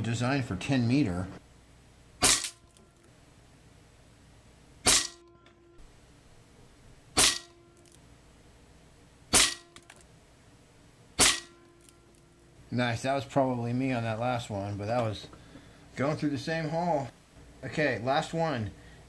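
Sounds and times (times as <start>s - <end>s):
air rifle shots: 2.2s - 2.6s, 4.8s - 5.3s, 7.2s - 7.6s, 9.3s - 9.8s, 11.2s - 11.6s.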